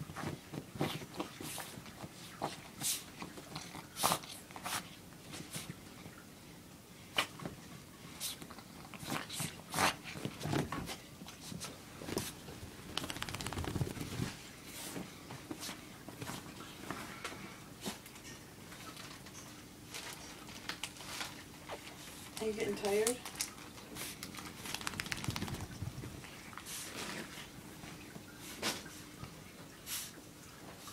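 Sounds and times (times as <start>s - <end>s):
dog scratching in blankets: 9.0s - 14.4s, 24.0s - 27.3s.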